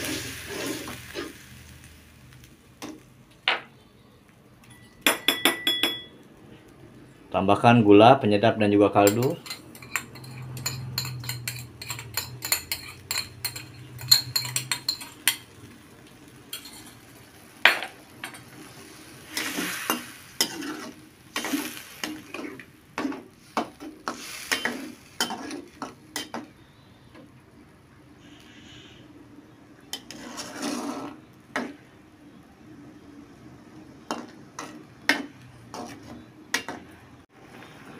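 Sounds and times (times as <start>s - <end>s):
spatula scraping a wok: 0.0s - 1.7s, 9.1s - 17.6s, 18.2s - 26.4s, 29.9s - 31.7s, 35.6s - 36.3s
metal spatula clinking: 4.6s - 6.2s, 9.0s - 15.5s, 16.5s - 17.0s.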